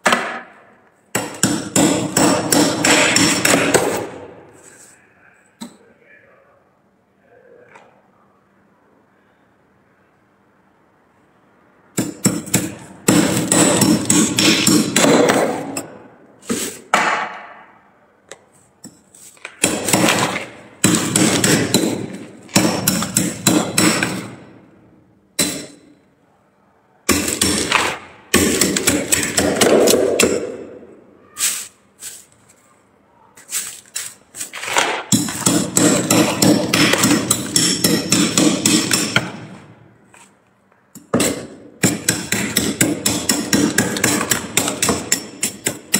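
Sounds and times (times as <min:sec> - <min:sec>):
metal spoon scraping frost: 0:31.4 - 0:32.3, 0:33.4 - 0:34.5.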